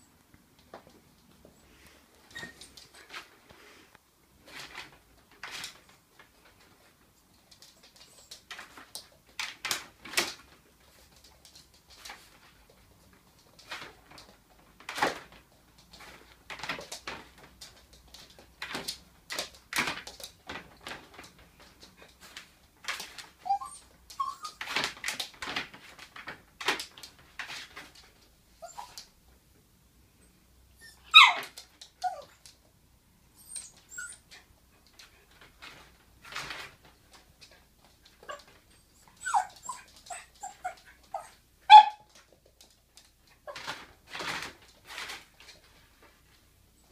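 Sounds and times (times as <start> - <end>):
small dog whimpering and whining: 23.4 - 24.6, 28.6 - 29.0, 30.8 - 31.4, 32.0 - 32.4, 33.4 - 34.3, 38.3 - 42.0.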